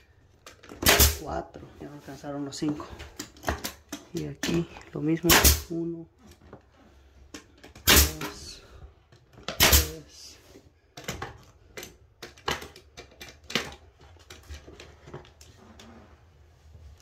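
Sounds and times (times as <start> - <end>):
nail gun shots: 0.8 - 1.2, 5.3 - 5.7, 7.8 - 8.5, 9.5 - 10.1.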